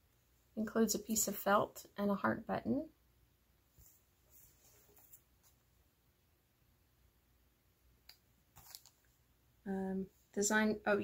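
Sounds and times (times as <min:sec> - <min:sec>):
plastic bag crinkling: 0:08.6 - 0:09.0.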